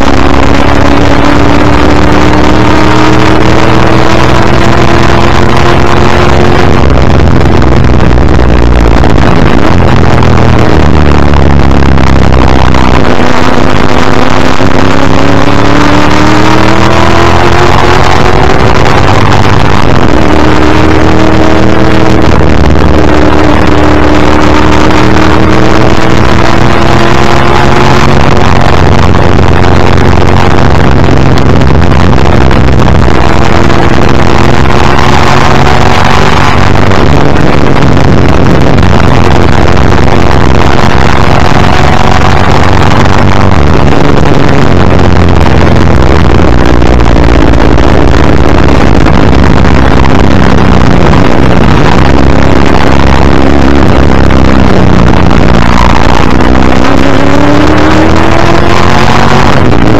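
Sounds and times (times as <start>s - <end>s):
racing engine at full throttle: 0.0s - 59.9s
wind and road rush: 0.0s - 59.9s.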